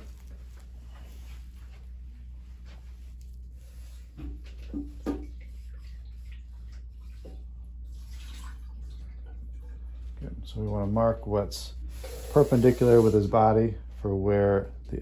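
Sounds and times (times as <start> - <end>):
faint handling sounds: 0.0 - 4.6
low room hum: 0.0 - 15.0.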